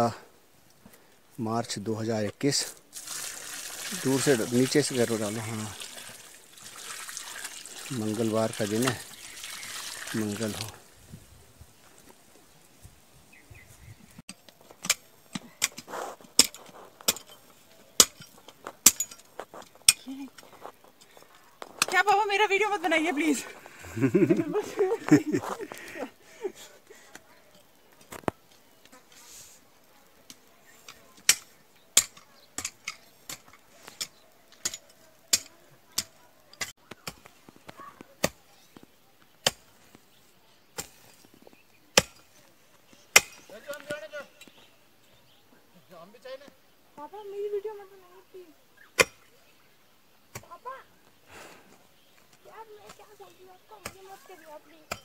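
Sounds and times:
loosened earth scraping: 13.6 - 26.0
hoe striking stony ground: 14.3 - 20.5, 31.2 - 38.5, 41.9 - 42.3, 43.1 - 44.0, 49.0 - 49.3
hoe chopping into stony soil: 41.9 - 42.3, 43.1 - 44.0.

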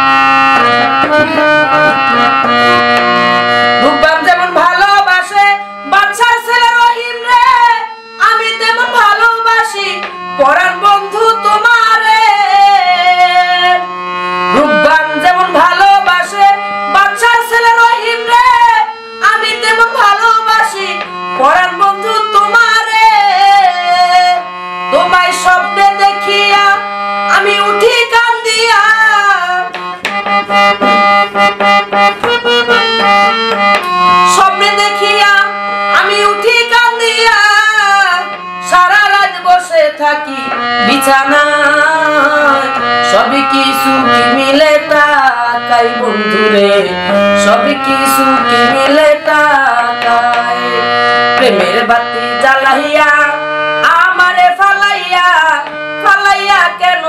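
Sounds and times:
harmonium drone and melody: 0.0 - 57.0
woman singing: 3.8 - 13.9, 14.5 - 29.8, 34.3 - 57.0
drum strokes: 30.7 - 31.2.

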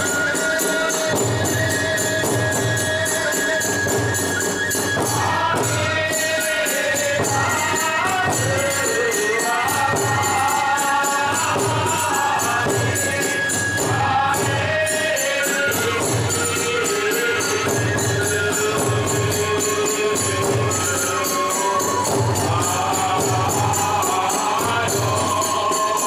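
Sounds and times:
transverse flute melody: 0.0 - 6.9, 12.8 - 26.0
small hand cymbals: 0.0 - 26.0.

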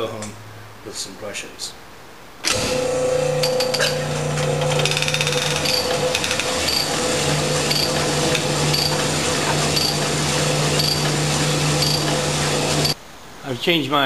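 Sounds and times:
honing machine hum: 2.8 - 13.0.

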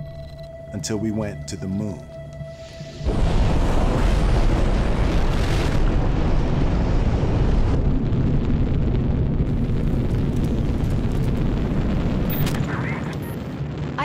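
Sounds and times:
rocket engine roar: 2.9 - 14.0.

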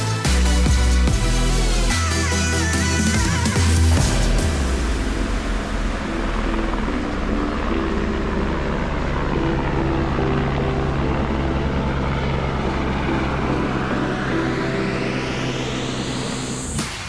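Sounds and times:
helicopter flying past: 0.0 - 17.0.

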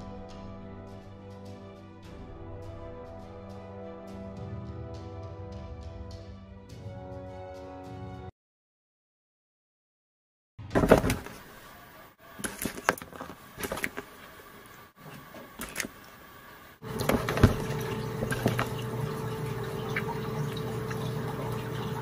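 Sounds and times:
knocks in plastic tub: 10.8 - 11.4, 17.0 - 18.7
steady low hum: 14.4 - 22.0.

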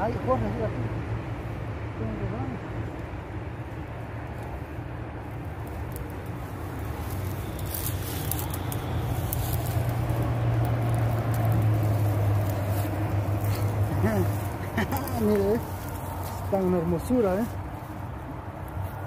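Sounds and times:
vehicle engine hum: 0.0 - 19.0
rope clicking and rustling: 4.2 - 19.0.

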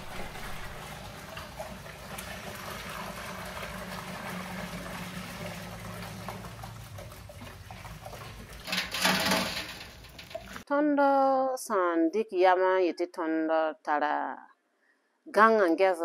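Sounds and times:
liquid pouring into metal pot: 0.0 - 10.6.

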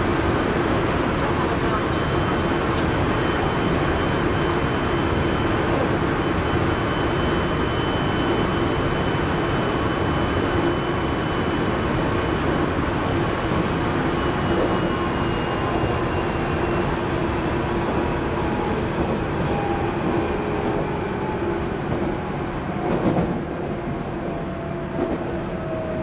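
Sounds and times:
train wheels rumbling on rail: 0.0 - 26.0.

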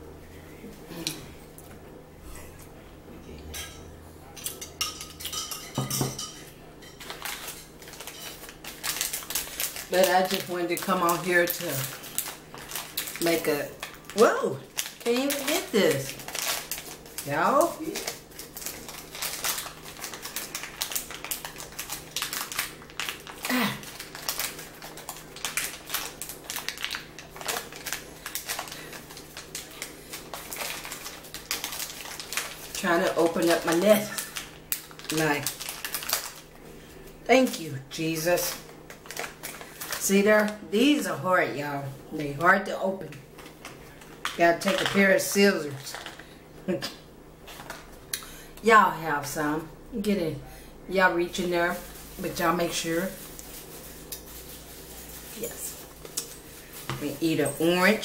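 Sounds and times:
metal spoon clinking in bowl: 3.6 - 7.1
snack bag crinkling: 7.0 - 36.6, 38.4 - 40.6, 43.2 - 46.4, 51.7 - 58.0.

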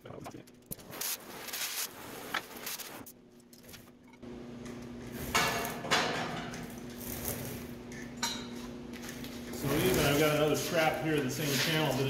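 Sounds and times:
gloved hands scraping and rubbing: 9.6 - 12.0.

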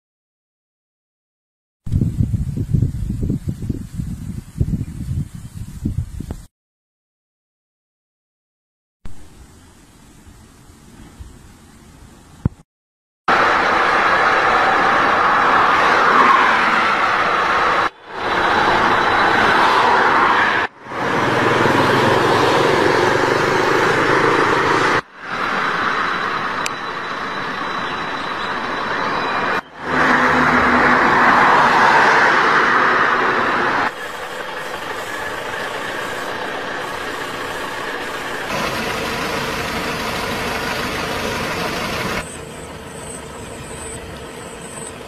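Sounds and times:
cars and trucks passing: 13.3 - 45.0.

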